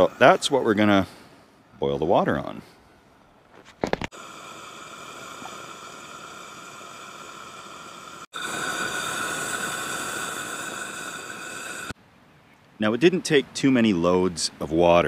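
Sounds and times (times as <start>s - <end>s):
gas burner hissing: 0.0s - 1.2s, 4.1s - 12.0s.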